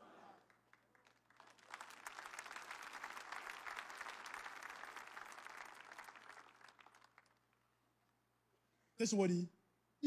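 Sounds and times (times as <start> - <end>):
crowd applauding: 0.4 - 7.6.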